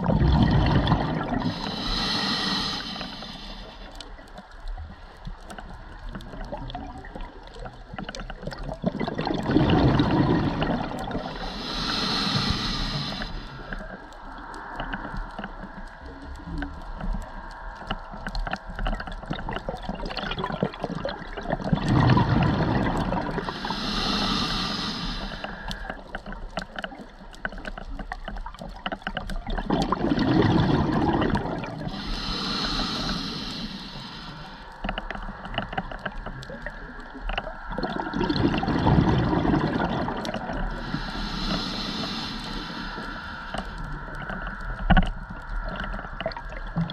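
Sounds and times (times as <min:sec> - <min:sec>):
exhaled bubbles rushing underwater: 0:00.0 - 0:03.4, 0:05.7 - 0:13.3, 0:18.8 - 0:25.8, 0:28.1 - 0:34.6, 0:36.4 - 0:46.9
regulator inhalation hiss: 0:01.5 - 0:03.9, 0:11.2 - 0:13.8, 0:23.4 - 0:25.9, 0:31.9 - 0:34.7, 0:40.7 - 0:43.8.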